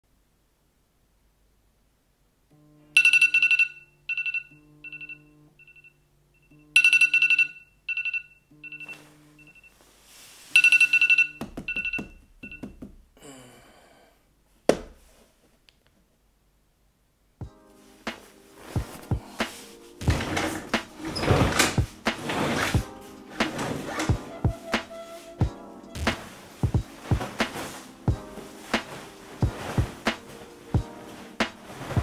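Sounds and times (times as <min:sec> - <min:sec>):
phone alarm chime: 0:03.0 - 0:09.8, 0:10.6 - 0:12.7
bedding rustling: 0:08.8 - 0:13.1, 0:17.5 - 0:32.0.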